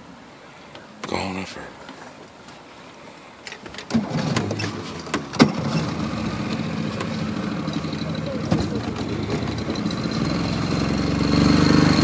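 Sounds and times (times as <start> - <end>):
boat motor running: 3.9 - 12.0.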